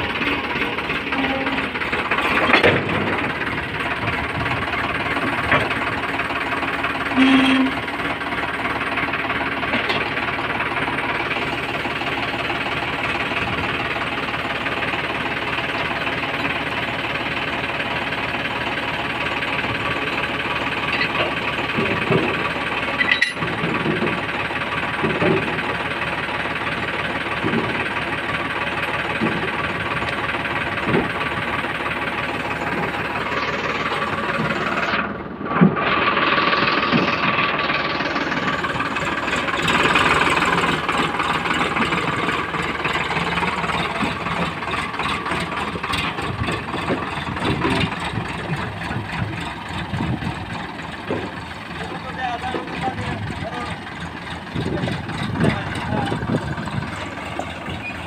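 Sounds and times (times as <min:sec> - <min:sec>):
tractor diesel engine idling: 0:00.0 - 0:58.0
metallic clanks: 0:20.8 - 0:24.2.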